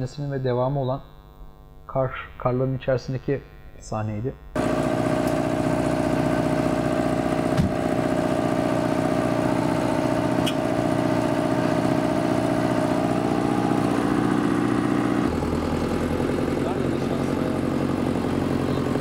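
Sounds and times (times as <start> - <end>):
vehicle engine running: 4.6 - 19.0.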